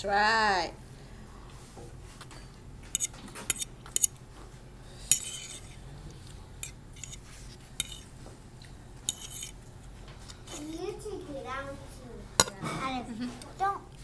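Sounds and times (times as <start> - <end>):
fork scraping ceramic plate: 2.9 - 4.2, 5.1 - 5.8, 6.6 - 8.1, 9.0 - 9.6.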